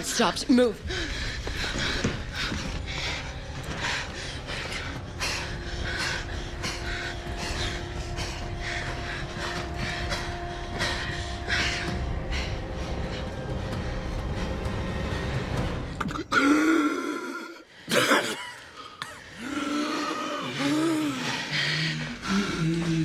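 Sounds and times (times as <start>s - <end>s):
steady low hum: 0.0s - 16.0s
woman breathing hard: 0.8s - 16.5s.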